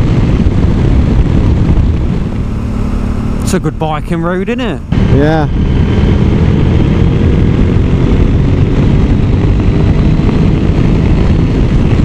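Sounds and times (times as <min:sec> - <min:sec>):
motorcycle engine: 0:00.0 - 0:12.0
wind rush: 0:00.0 - 0:12.0.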